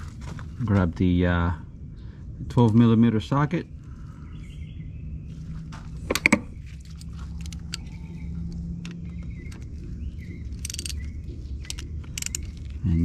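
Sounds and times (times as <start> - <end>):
metal hand tools clinking: 10.5 - 12.8.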